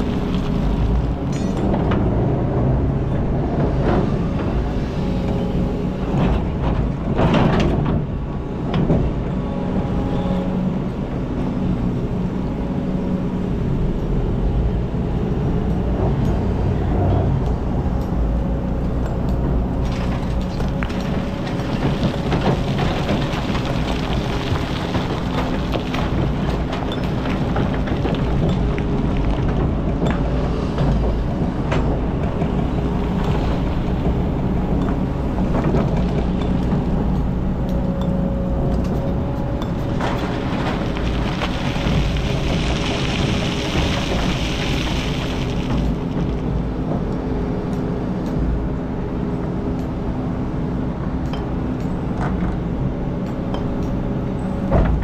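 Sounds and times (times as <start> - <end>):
sand and rock pouring: 0.0 - 1.2, 19.9 - 29.0, 40.2 - 46.6.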